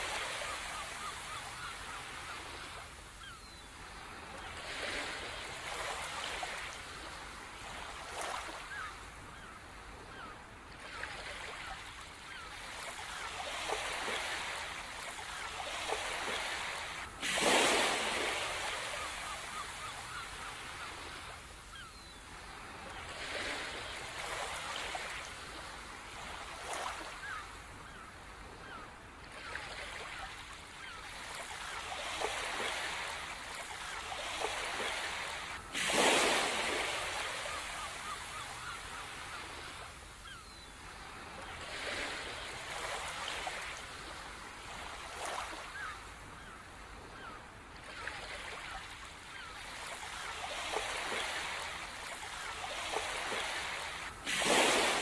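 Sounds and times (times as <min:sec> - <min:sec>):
birds calling faintly: 0:00.0 - 0:55.0
ocean surf washing: 0:34.1 - 0:40.0, 0:52.7 - 0:55.0.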